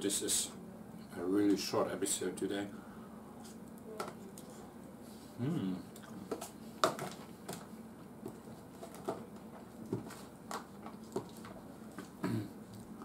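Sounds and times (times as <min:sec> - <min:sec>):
soft low mouth sound: 0:05.2 - 0:06.2.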